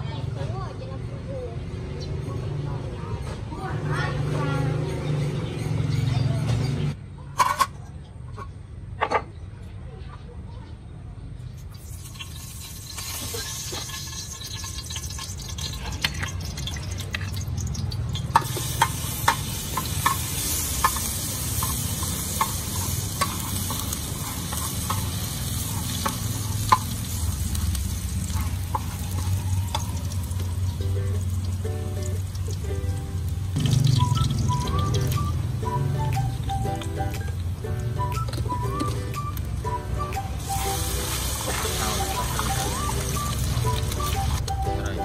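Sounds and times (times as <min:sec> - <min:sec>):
garlic sizzling in oil: 0:11.7 - 0:38.9, 0:39.5 - 0:44.6.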